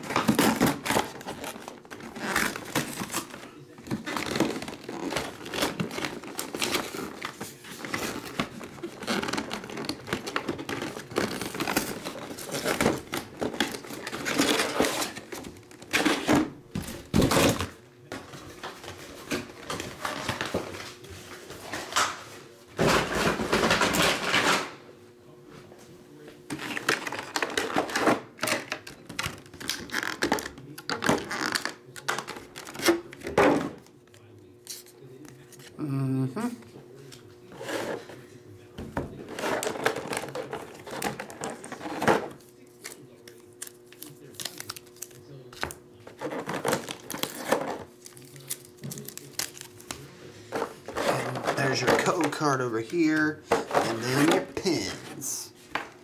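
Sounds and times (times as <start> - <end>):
plastic packaging rustling: 0.0 - 22.1, 39.2 - 55.8.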